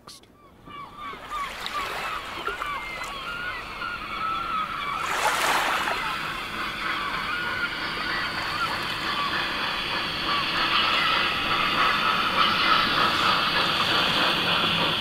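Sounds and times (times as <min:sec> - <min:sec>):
water lapping: 0:00.7 - 0:09.4.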